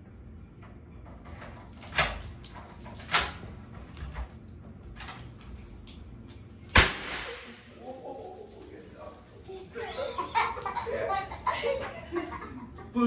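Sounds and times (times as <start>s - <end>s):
loud sharp bang: 6.7s - 7.7s.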